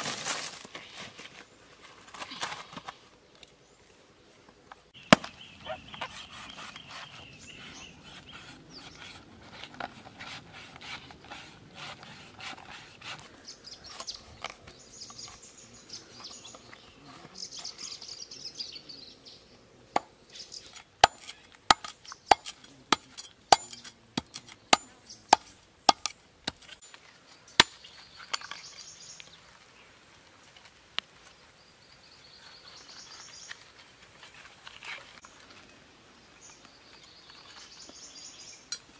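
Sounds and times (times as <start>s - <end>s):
knife scraping coconut husk: 5.1s - 14.6s, 20.6s - 26.8s
knife chopping strikes: 21.0s - 26.7s.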